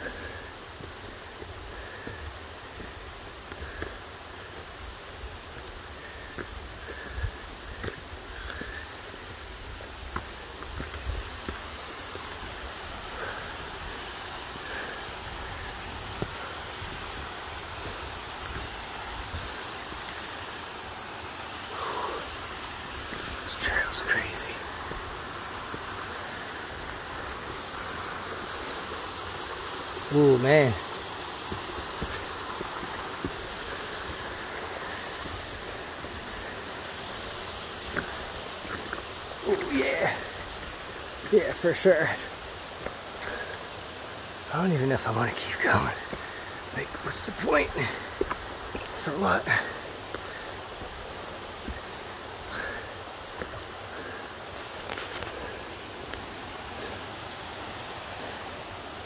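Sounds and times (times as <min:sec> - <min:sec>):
stream rushing over rocks: 0:00.0 - 0:59.0
footsteps on loose stone: 0:31.5 - 0:36.4, 0:47.8 - 0:51.8.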